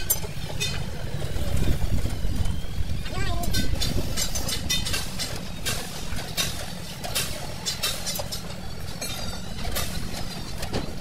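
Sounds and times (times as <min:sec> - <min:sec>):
sharp metallic clicks and knocks: 0:00.0 - 0:00.9, 0:03.1 - 0:11.0.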